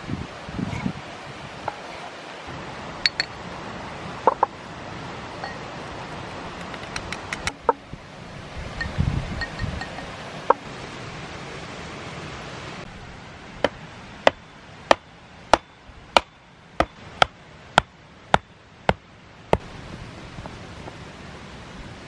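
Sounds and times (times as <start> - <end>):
single clink: 3.0 - 3.4, 8.8 - 10.1
wooden stake being struck: 6.6 - 7.8, 13.6 - 19.7.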